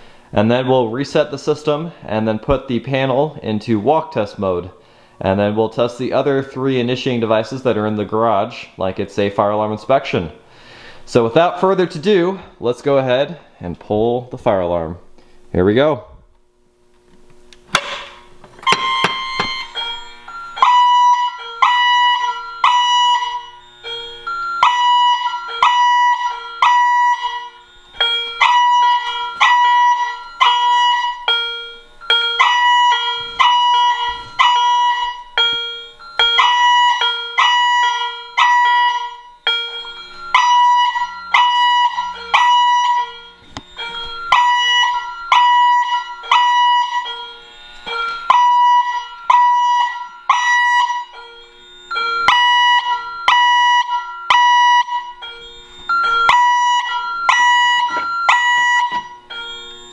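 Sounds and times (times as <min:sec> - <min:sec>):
fire alarm chime ringing: 0:17.7 - 0:59.9.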